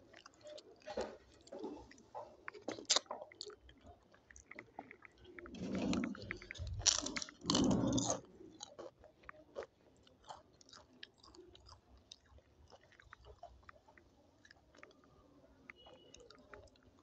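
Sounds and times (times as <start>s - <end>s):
person chewing food: 0.0s - 17.0s.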